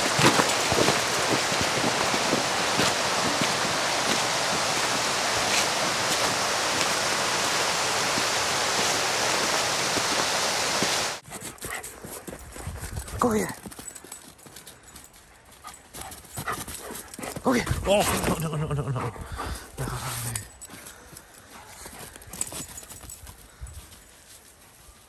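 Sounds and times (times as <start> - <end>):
rushing creek water: 0.0 - 11.2.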